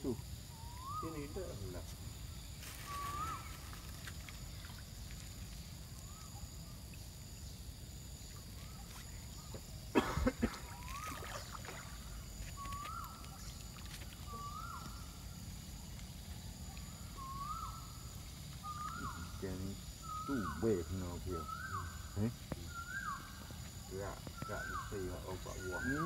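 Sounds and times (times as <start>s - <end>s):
pellets splashing into water: 10.4s - 12.2s.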